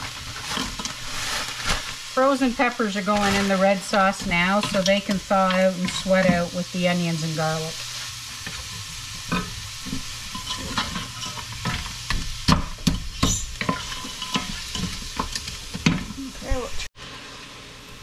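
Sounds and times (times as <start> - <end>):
vegetables sizzling in oil: 0.0 - 18.0
wooden spoon scraping a pot: 2.9 - 6.6, 7.8 - 16.2.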